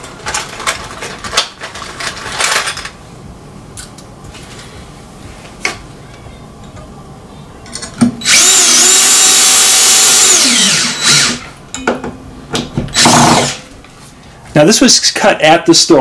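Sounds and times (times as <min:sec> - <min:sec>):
power drill driving a screw: 0:08.2 - 0:11.5, 0:12.9 - 0:13.6.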